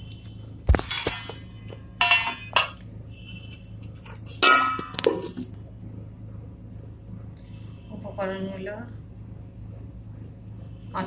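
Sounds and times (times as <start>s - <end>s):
steel dishes clinking: 2.0s - 2.8s, 4.1s - 5.5s.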